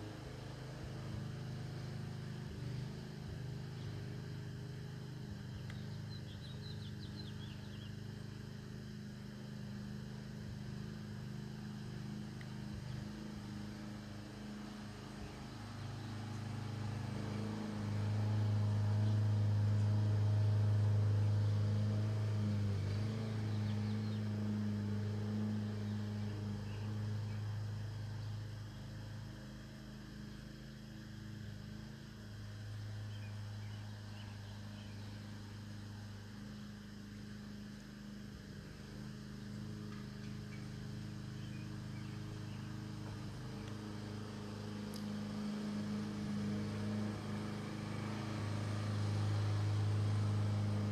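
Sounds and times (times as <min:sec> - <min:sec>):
low motor hum: 0:00.0 - 0:50.9.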